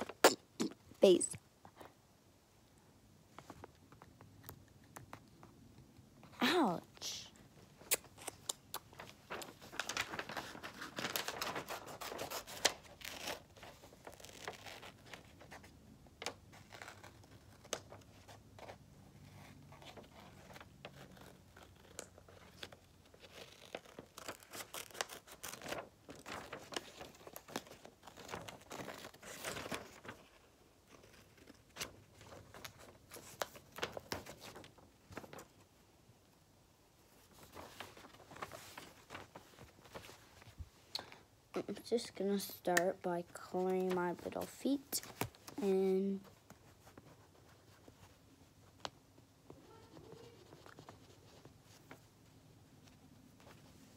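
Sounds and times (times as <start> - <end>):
paper rustling: 8.0 - 35.7, 37.1 - 40.7, 46.2 - 53.9.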